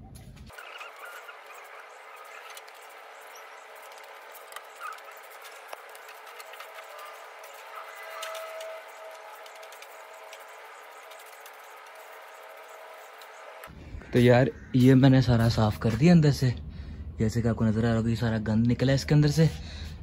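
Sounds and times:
rustling and scraping of debris: 0.1 - 13.6.

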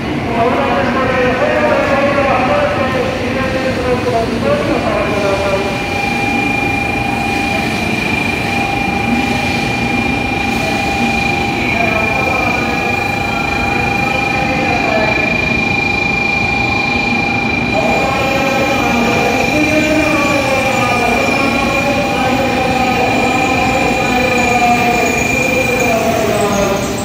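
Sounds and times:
train braking to a stop: 0.0 - 27.0
high whine: 4.5 - 27.0.

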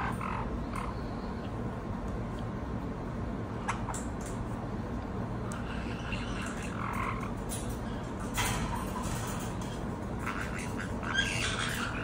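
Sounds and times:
parrot raspy chirps and chatter: 0.0 - 1.5, 5.4 - 12.0.

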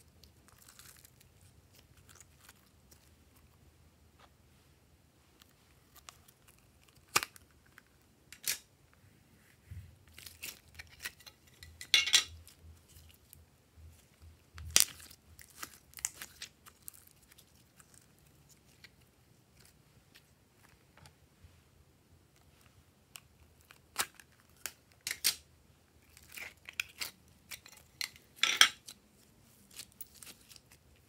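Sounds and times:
slime crackling and popping: 14.6 - 18.4.

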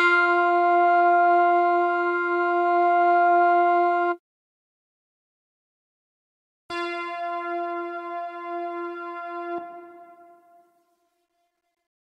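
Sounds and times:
sustained synthesizer note: 6.7 - 10.8.

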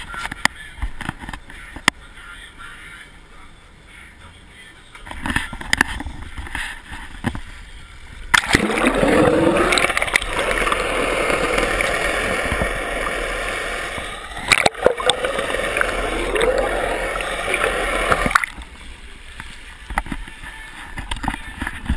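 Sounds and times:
underwater rush and gurgle: 8.3 - 19.6.

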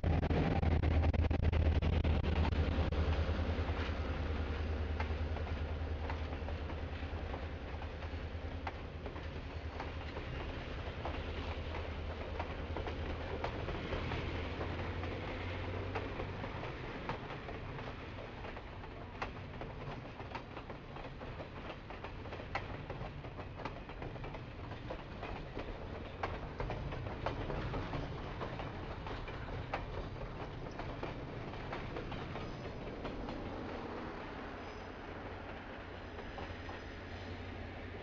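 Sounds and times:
low hum: 0.0 - 5.3
train cars rumbling past: 0.0 - 38.0
wheels clicking over rail joints: 2.3 - 38.0.

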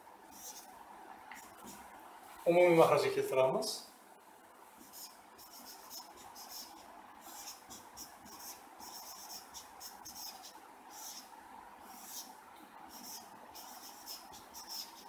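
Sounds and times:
marker scratching on whiteboard: 0.3 - 0.7, 1.4 - 1.8, 4.8 - 12.3, 12.9 - 15.0.

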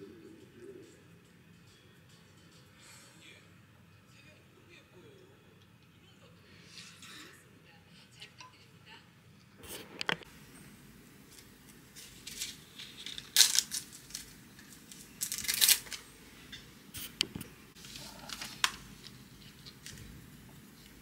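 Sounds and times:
paper page tearing: 11.9 - 16.0.

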